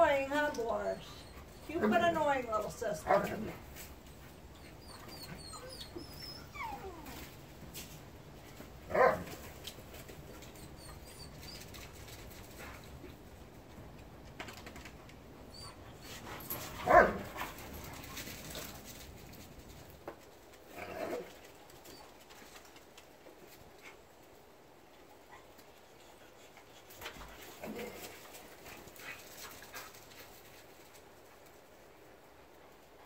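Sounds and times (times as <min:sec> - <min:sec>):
dog barking: 0:08.9 - 0:09.3, 0:16.8 - 0:17.2.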